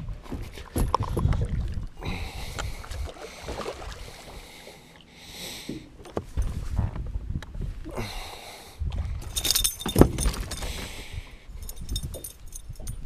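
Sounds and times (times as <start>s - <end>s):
rumbles scuffs and knocks on boat: 0.0s - 1.8s, 5.8s - 7.8s, 9.0s - 11.0s.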